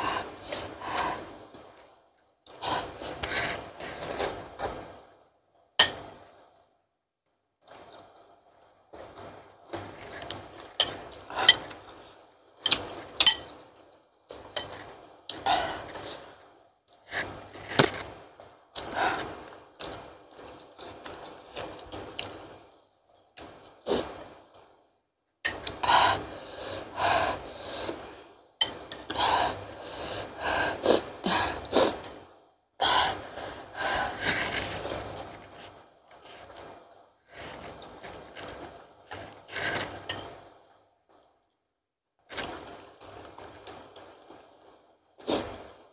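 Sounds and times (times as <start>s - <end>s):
slurping noodles: 42.3s - 45.7s.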